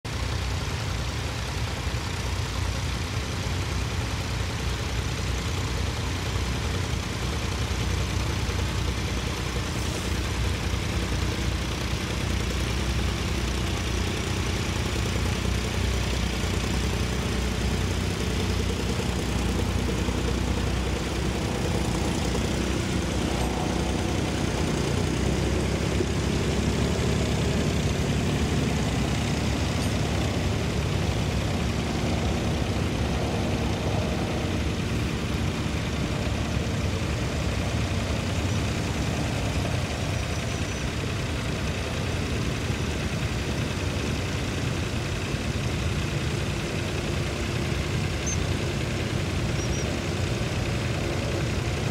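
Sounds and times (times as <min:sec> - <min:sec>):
tractor engine running under load: 0:00.0 - 0:51.9.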